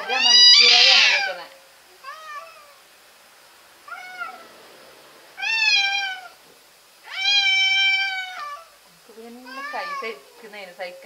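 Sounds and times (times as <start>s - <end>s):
cat yowling: 0.0s - 2.9s, 3.8s - 4.6s, 5.4s - 8.8s, 9.4s - 10.4s.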